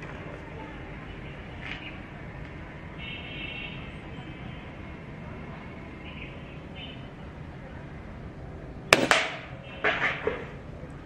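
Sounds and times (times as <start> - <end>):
air rifle shot: 8.9 - 9.5.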